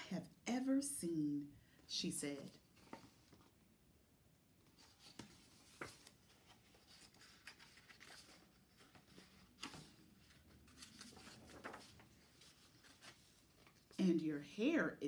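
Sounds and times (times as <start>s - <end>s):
paper pages turning: 2.4s - 3.6s, 4.6s - 14.1s.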